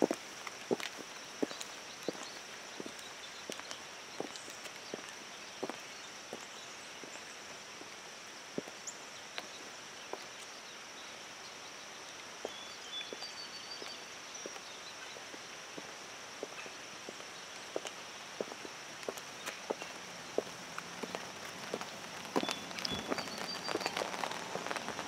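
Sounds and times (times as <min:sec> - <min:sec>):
high heels clicking on wet asphalt: 0:00.0 - 0:05.8, 0:15.8 - 0:25.0
rain hissing: 0:00.0 - 0:12.9, 0:13.8 - 0:25.0.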